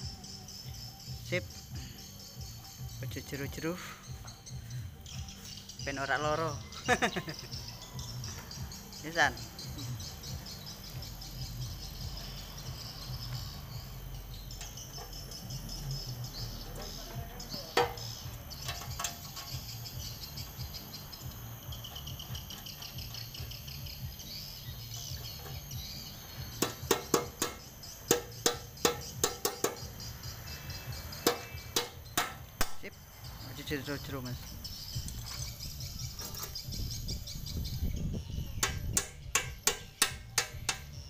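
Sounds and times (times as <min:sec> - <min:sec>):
insects chirping: 0:00.0 - 0:41.0
hammer tapping on metal: 0:16.8 - 0:20.0, 0:26.6 - 0:29.9, 0:31.2 - 0:32.8, 0:38.6 - 0:41.0.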